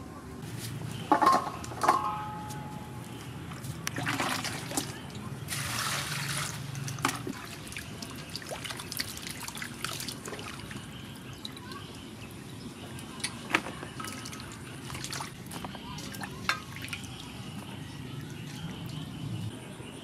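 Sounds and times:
water sloshing in bowl: 3.9s - 11.8s, 13.0s - 19.2s.

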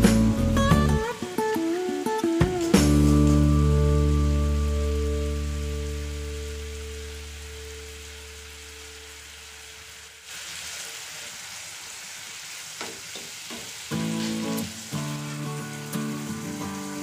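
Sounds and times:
music with held notes: 0.0s - 9.2s, 13.9s - 17.0s
sauce sizzling in a frying pan: 0.1s - 17.0s.

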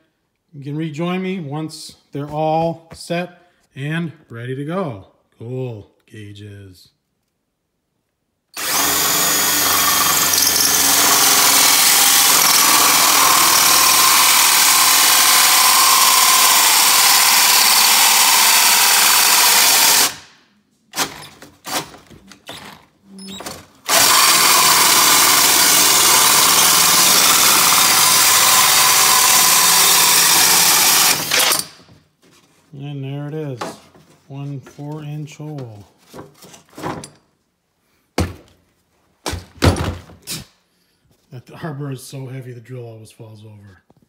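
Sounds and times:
drill hole saw cutting: 8.6s - 20.2s, 23.8s - 31.8s.

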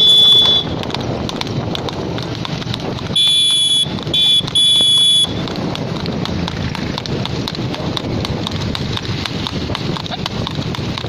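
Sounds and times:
hoofbeats clattering on pavement: 0.0s - 11.0s
road noise: 0.0s - 11.0s.

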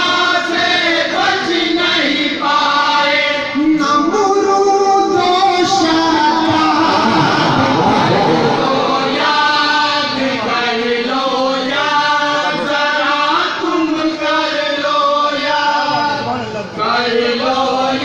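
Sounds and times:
man chanting into a microphone: 2.9s - 10.9s, 11.6s - 18.0s.

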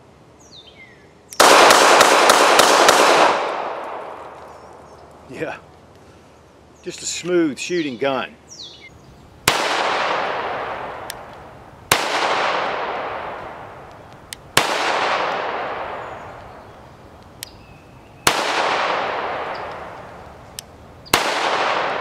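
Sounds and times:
pistol shots with echo: 1.4s - 4.4s, 9.5s - 11.2s, 11.9s - 13.7s, 14.6s - 16.3s, 18.2s - 20.0s, 21.1s - 22.0s.

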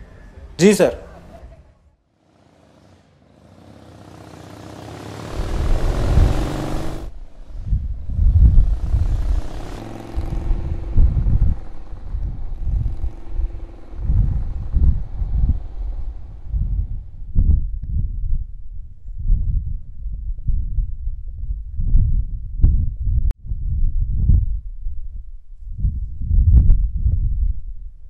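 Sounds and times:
motorcycle engine revving: 2.1s - 17.7s.

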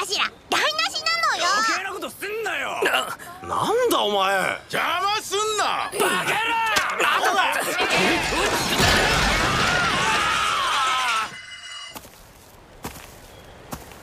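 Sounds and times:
crowd shouting: 6.1s - 11.5s
objects crashing and shattering: 7.8s - 11.9s.

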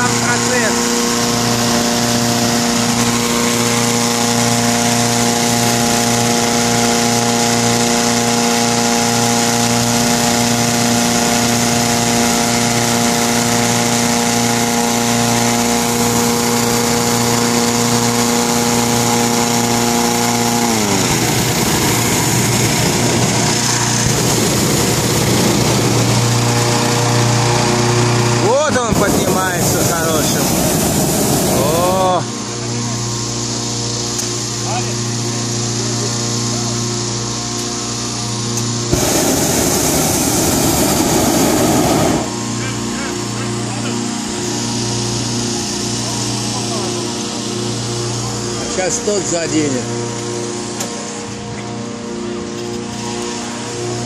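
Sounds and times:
inflator fan engine drone: 0.0s - 54.0s
rush of blown air: 29.0s - 32.3s, 38.9s - 42.6s.

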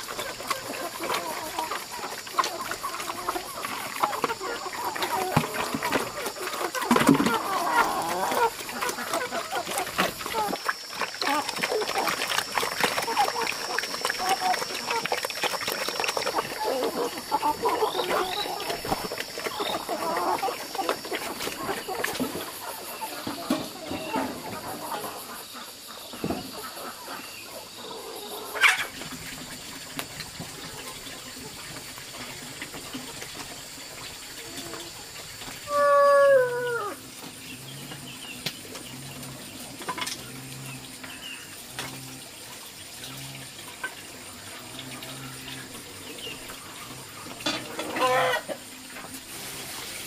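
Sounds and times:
chickens clucking: 0.0s - 42.9s, 43.6s - 50.0s.

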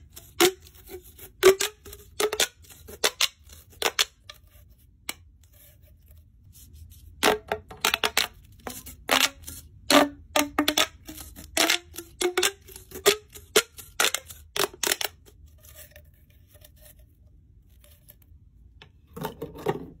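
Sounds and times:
plastic pop tubes popping: 1.4s - 4.3s, 7.2s - 15.2s.

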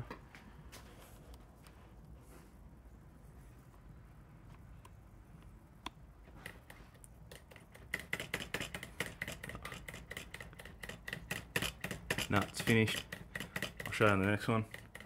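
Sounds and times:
quiet handling sounds: 0.0s - 7.8s.

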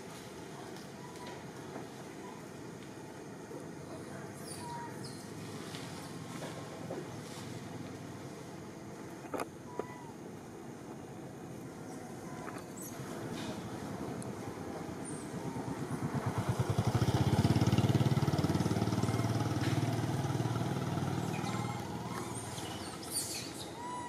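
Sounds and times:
motorcycle passing by: 12.9s - 23.4s.

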